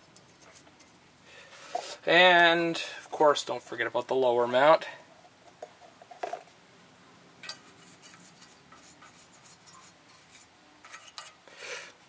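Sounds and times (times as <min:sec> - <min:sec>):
brush scratching on metal: 0:00.0 - 0:01.0, 0:07.5 - 0:11.3.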